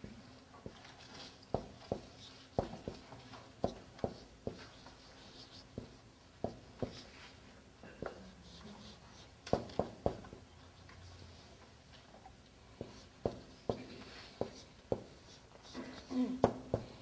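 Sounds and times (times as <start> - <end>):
marker scratching on whiteboard: 0.6 - 7.4, 12.8 - 16.1
marker tapping on whiteboard: 1.5 - 4.7, 9.4 - 10.4, 12.8 - 15.2.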